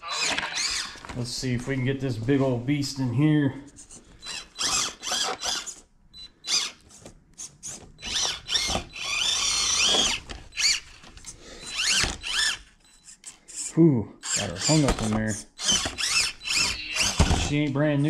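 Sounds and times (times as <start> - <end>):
rc car electric motor whining: 0.0 - 1.0, 3.8 - 6.8, 7.6 - 17.7.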